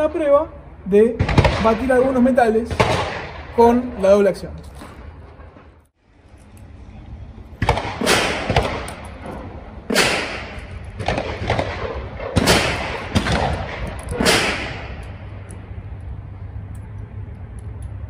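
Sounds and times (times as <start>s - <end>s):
loud gunshots echoing: 1.1s - 3.9s, 7.6s - 15.2s.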